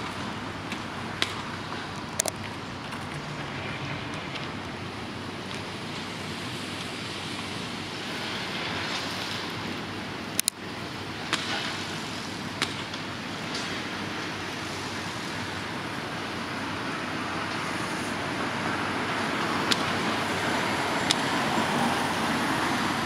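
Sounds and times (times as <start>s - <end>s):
diesel excavators running: 0.0s - 11.3s
street traffic: 0.0s - 23.0s.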